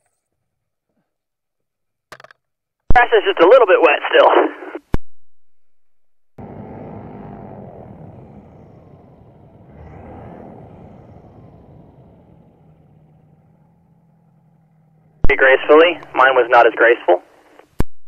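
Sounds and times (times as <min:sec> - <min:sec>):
propeller engine passing: 0:06.4 - 0:17.3.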